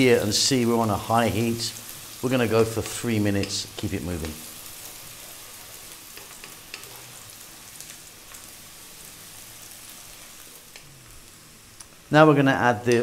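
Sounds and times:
onion sizzling in hot oil: 0:00.0 - 0:13.0
small crackles: 0:01.7 - 0:12.1.

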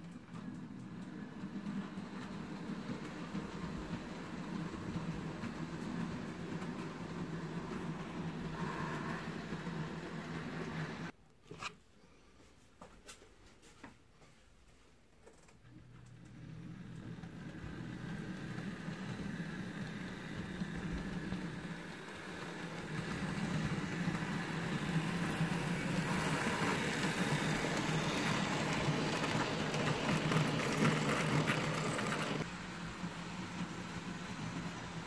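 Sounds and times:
wheels rumbling on rail: 0:00.0 - 0:11.1, 0:16.2 - 0:35.0
model train motor hum: 0:16.3 - 0:35.0.

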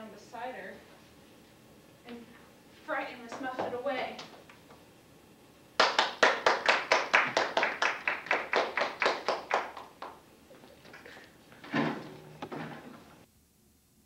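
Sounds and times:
audience clapping: 0:05.8 - 0:10.2.

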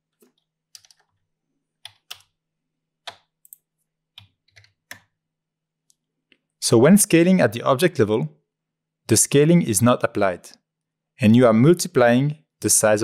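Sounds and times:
computer keyboard clicks: 0:00.8 - 0:01.1.

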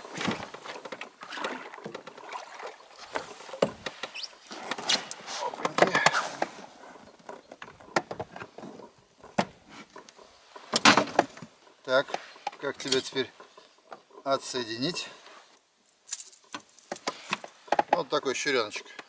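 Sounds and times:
gear clicks knocks and rustling: 0:16.1 - 0:18.2.

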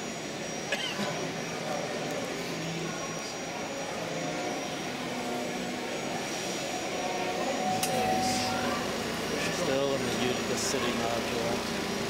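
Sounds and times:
distant voices talking: 0:00.0 - 0:12.0.

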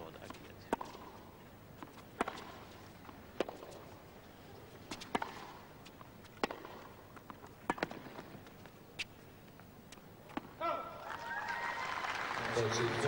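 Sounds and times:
tennis racquets striking ball: 0:00.2 - 0:04.0, 0:04.9 - 0:09.1
ball bouncing: 0:01.8 - 0:02.6, 0:03.3 - 0:03.8, 0:04.9 - 0:05.5, 0:06.3 - 0:08.3
crowd applauding: 0:11.0 - 0:13.0.

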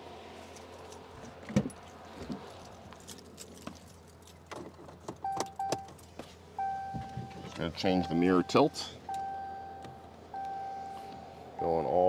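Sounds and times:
electronic warning beeps: 0:06.6 - 0:12.0.

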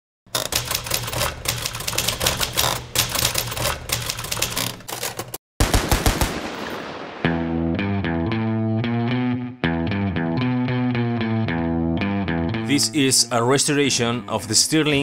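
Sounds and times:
typewriter keys clacking: 0:00.3 - 0:05.4.

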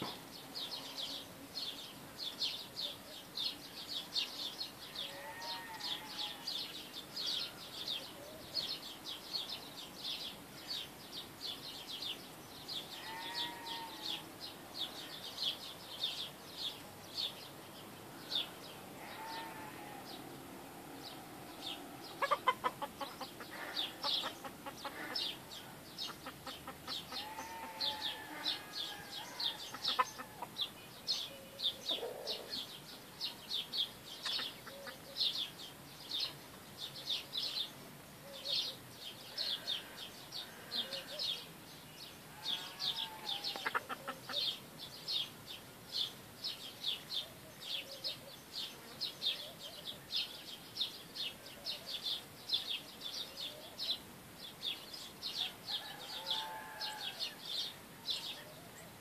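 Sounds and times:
small birds chirping: 0:00.0 - 0:59.0
chickens clucking softly: 0:21.2 - 0:30.7, 0:31.8 - 0:32.6, 0:34.2 - 0:35.1, 0:43.0 - 0:44.5.

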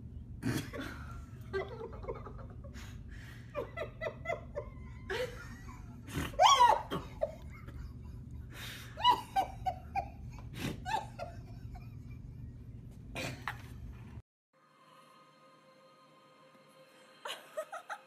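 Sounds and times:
person laughing hard: 0:00.4 - 0:13.8, 0:17.3 - 0:18.0.

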